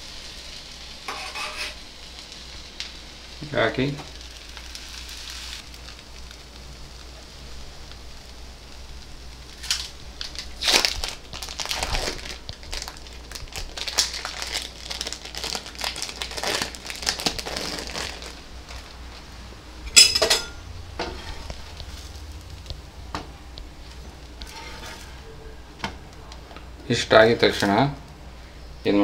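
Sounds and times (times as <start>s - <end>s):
plastic wrapping crinkling: 9.4s - 20.4s, 21.0s - 27.9s
kitchen utensil clatter: 19.9s - 21.4s.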